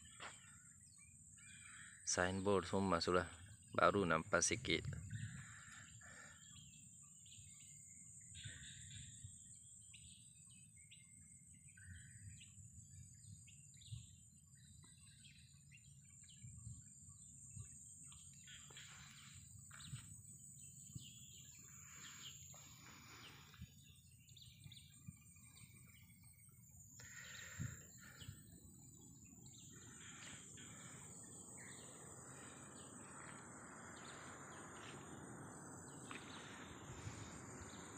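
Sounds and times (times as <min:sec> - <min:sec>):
bird chirps: 0:00.0 - 0:37.9
steady high hum: 0:25.7 - 0:37.9.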